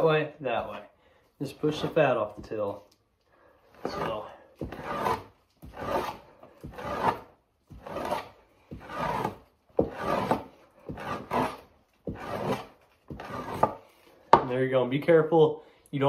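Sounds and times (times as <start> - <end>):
knife scraping fat off hide: 3.7 - 14.1.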